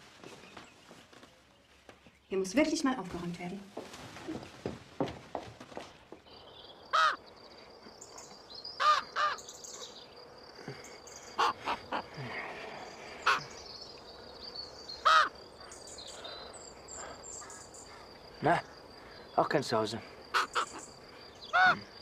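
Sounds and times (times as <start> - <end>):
crickets trilling: 6.0 - 22.0
crow cawing: 6.9 - 7.2, 8.8 - 9.5, 11.3 - 12.2, 13.2 - 13.5, 15.0 - 15.7, 17.0 - 18.0, 20.3 - 20.9, 21.5 - 21.9.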